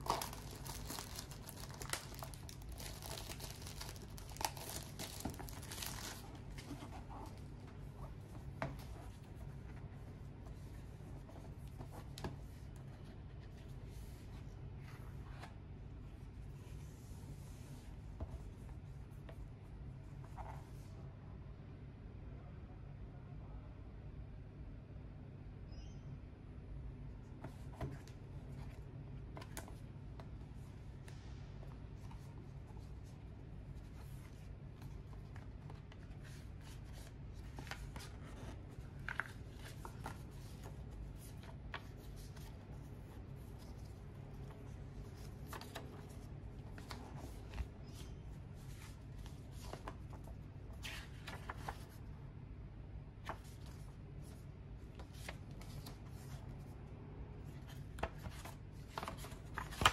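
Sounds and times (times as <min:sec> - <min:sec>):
paper and cardboard rustling: 0:00.0 - 0:14.4, 0:33.8 - 0:52.0.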